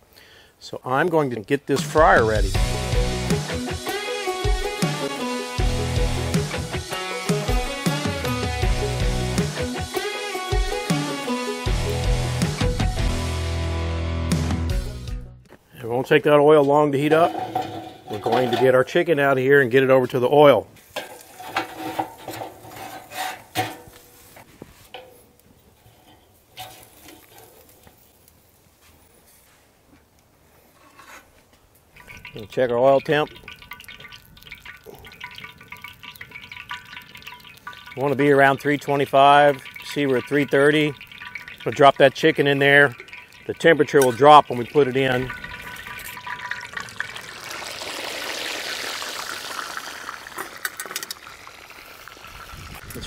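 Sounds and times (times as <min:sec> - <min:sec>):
frying oil sizzling: 0:02.0 - 0:13.4, 0:31.9 - 0:53.0
metal utensils clinking on grate: 0:17.0 - 0:19.0, 0:20.9 - 0:24.0, 0:32.0 - 0:47.0, 0:50.4 - 0:51.2.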